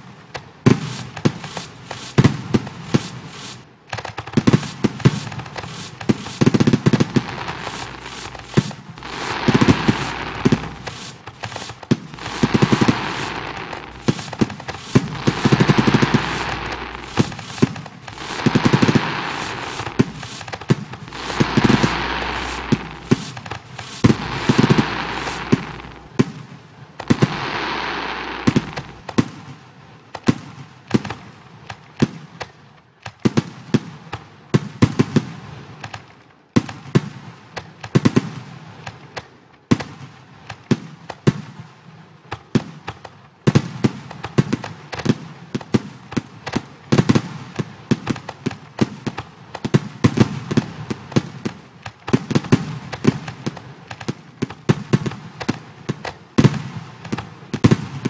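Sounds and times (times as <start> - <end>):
fireworks bangs: 0.6 - 29.4, 52.2 - 58.0
crackling fizz: 5.3 - 26.3, 27.0 - 29.2.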